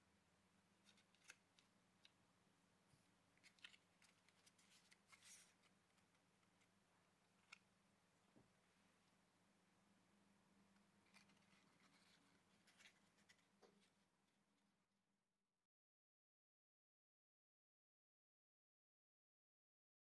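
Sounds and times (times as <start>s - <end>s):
cardstock rustling and clicking: 0.8s - 2.2s, 3.4s - 6.7s, 11.0s - 14.0s.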